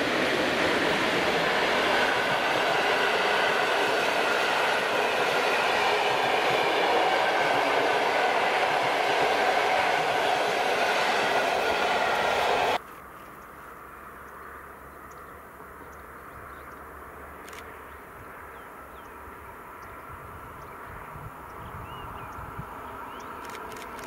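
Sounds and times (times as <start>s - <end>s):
train wheels rumbling on rails: 0.0s - 12.8s.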